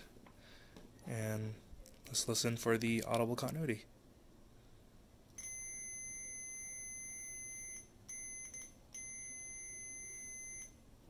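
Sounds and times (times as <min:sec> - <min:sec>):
multimeter continuity beep: 0:05.4 - 0:10.8.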